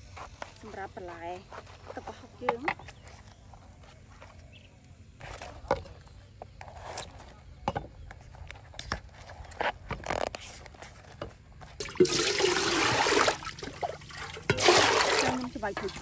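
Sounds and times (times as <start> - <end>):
scrapes and rustles of handling: 0.0 - 11.8
water pouring into metal pot: 11.8 - 16.0.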